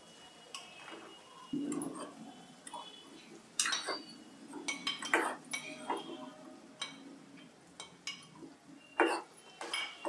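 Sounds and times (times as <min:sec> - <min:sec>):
metal spoon scraping glass bowl: 0:03.6 - 0:07.0.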